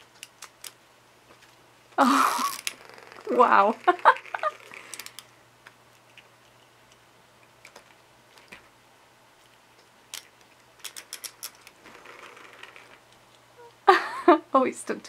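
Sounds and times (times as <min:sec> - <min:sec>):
toy mouse clicking and ticking: 0:10.1 - 0:11.6.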